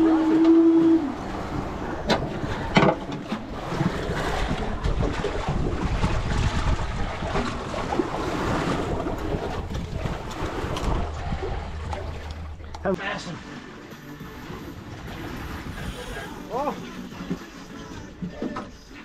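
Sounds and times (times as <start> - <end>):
sea water washing around boat: 0.0 - 19.0
wind buffeting microphone: 1.2 - 12.8.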